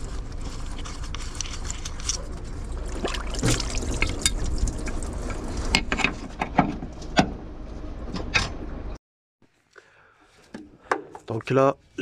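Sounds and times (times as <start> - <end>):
steady low hum: 0.0 - 9.0.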